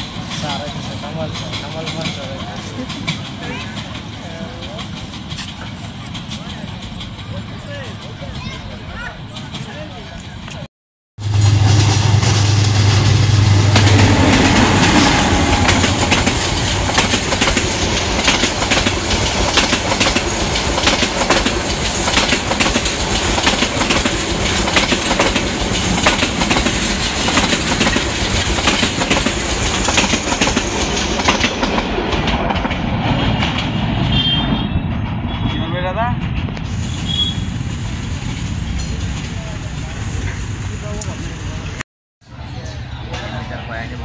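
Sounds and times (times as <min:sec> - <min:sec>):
train roar: 0:00.0 - 0:10.6, 0:11.2 - 0:44.0
train wheels clattering over rail joints: 0:00.0 - 0:10.6, 0:11.8 - 0:34.1.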